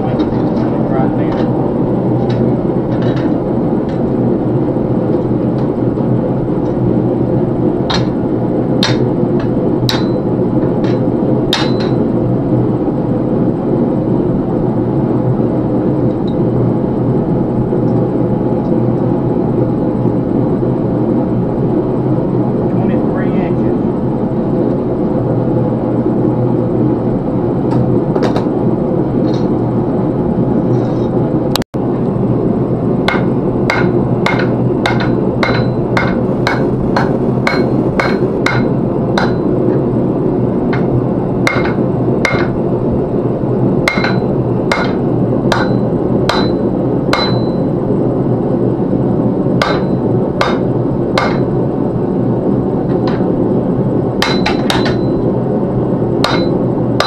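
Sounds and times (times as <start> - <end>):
forge blower rushing: 0.0 - 57.0
hammer striking metal on anvil: 8.8 - 9.1, 9.9 - 12.0, 33.1 - 39.5, 41.5 - 42.6, 43.9 - 47.6, 49.6 - 51.5, 54.2 - 55.2, 56.2 - 56.6.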